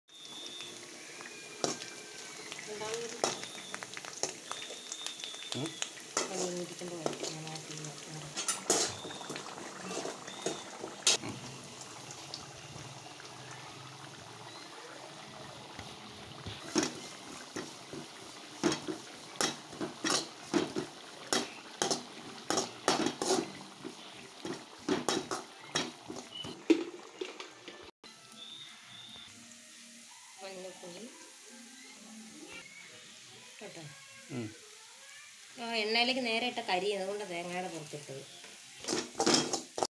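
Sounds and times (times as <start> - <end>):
oil sizzling: 0.1 - 39.9
spoon clanking against pan: 3.2 - 4.7, 8.3 - 11.2, 16.7 - 26.9, 38.8 - 39.9
spoon scraping metal wok: 6.1 - 11.2, 16.6 - 26.5, 38.8 - 39.9.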